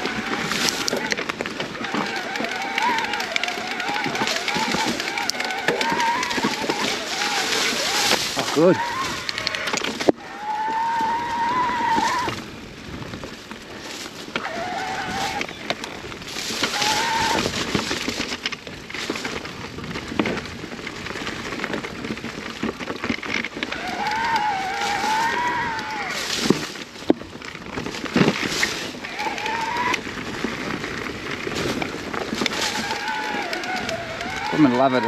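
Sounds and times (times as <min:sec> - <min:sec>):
electric bike motor whining: 0:00.0 - 0:12.4, 0:14.4 - 0:18.2, 0:23.5 - 0:26.8, 0:28.5 - 0:35.0
tyre and trail noise: 0:00.0 - 0:35.0
bike knocks and rattles: 0:11.9 - 0:35.0.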